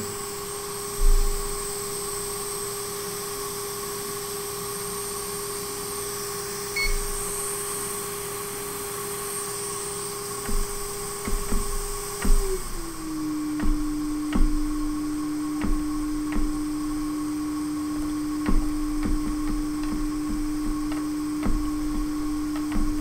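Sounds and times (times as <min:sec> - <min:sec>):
hot air blower whine: 0:00.0 - 0:23.0
short beep: 0:06.8 - 0:07.1.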